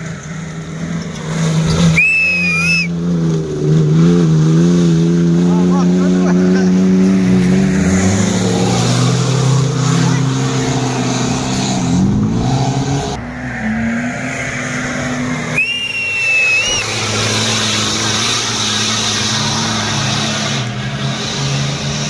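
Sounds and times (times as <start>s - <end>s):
off-road engines revving: 0.0s - 22.0s
shrill whistle: 1.9s - 2.9s, 15.5s - 17.0s.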